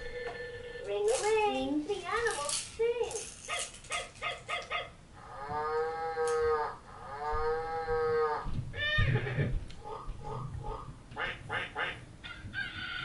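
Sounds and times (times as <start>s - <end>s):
recorded cow mooing from toy: 5.2s - 8.5s.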